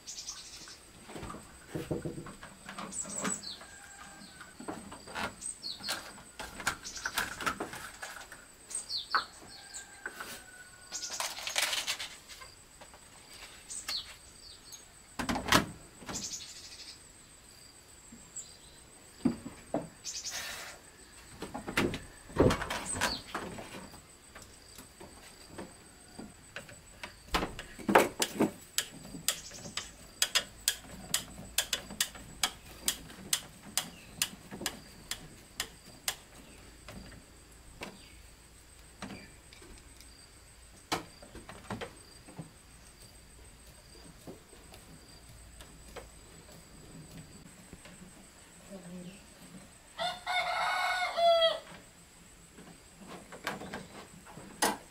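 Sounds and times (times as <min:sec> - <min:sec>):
birds chirping: 0:28.8 - 0:37.0.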